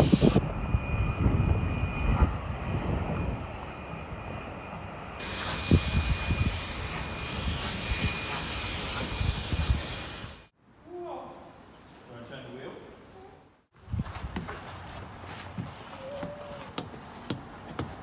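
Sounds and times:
steam train rumbling on track: 0.0 - 0.4, 5.2 - 10.5.

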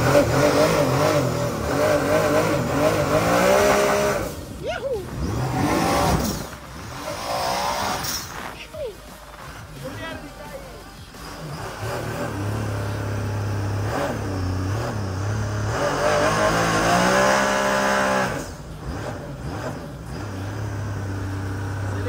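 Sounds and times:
jet ski engine revving: 0.0 - 8.2, 11.1 - 22.0.

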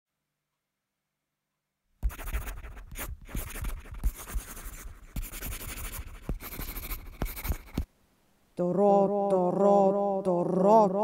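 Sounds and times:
pencil knocking on desk: 2.0 - 7.9
pencil scratching on paper: 2.0 - 7.9.

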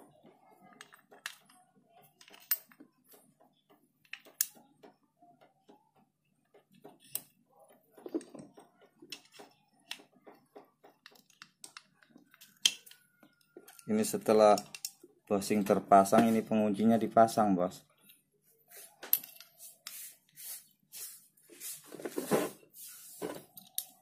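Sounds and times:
metallic clicks of steel parts: 14.5 - 15.0.

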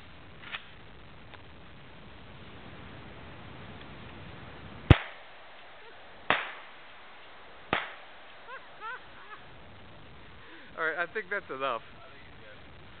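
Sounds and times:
gunshots: 4.9 - 5.7, 6.3 - 7.1, 7.7 - 8.4.

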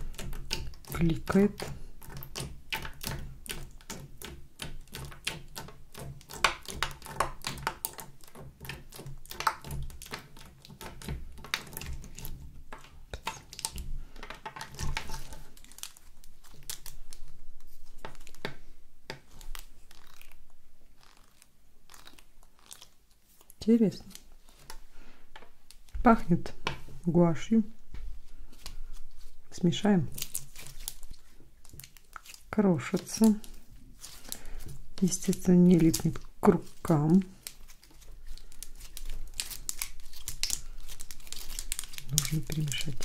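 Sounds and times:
slime clicking under nails: 0.0 - 13.8
slime squishing: 0.0 - 24.9, 25.5 - 43.0.

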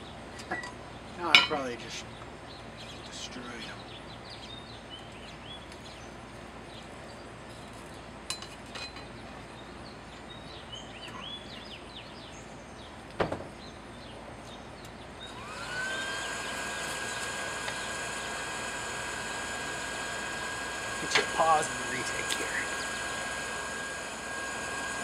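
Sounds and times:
birds chirping: 0.0 - 8.2, 9.0 - 25.0
air blower motor whine: 15.2 - 25.0.

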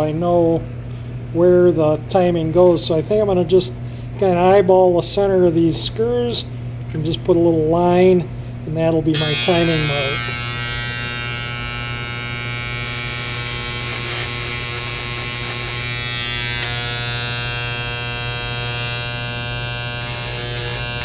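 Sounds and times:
electric engraver buzzing: 9.1 - 21.0.

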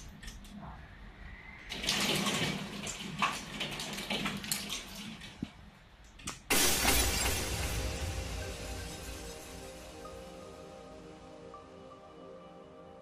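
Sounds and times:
rain and hail on window glass: 1.7 - 5.6, 6.5 - 9.5
glass shattering: 6.5 - 10.4.

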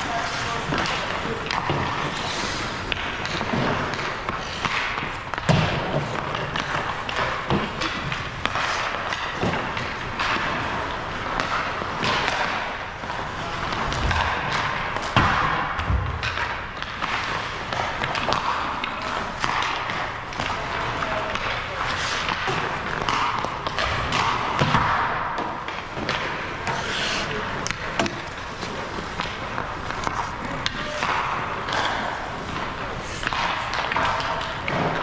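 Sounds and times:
stick and puck clacks: 0.0 - 35.0
skates hissing on ice: 26.7 - 27.4.

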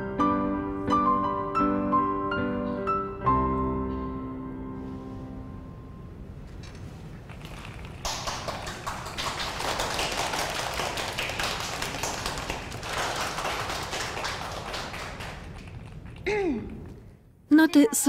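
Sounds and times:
audience clapping: 7.4 - 16.9.

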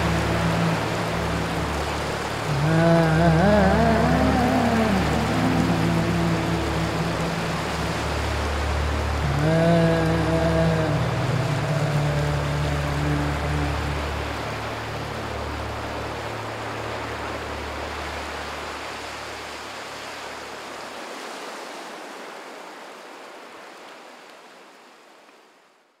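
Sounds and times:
low steady drone: 0.0 - 19.2
steady rushing hiss: 0.0 - 20.5.

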